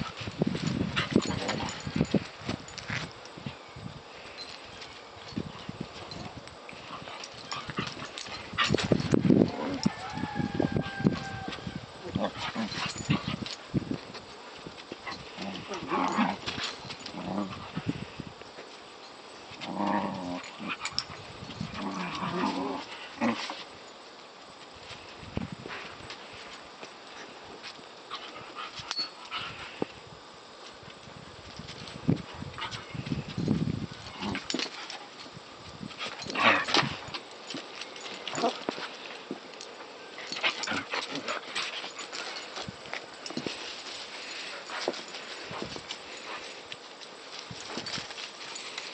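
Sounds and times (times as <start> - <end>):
dogs play-growling: 0.0 - 3.1, 5.5 - 10.1, 10.8 - 18.2, 19.4 - 23.8, 28.1 - 30.0, 31.5 - 35.3, 35.9 - 48.9
paws scuffling on concrete: 0.0 - 48.9.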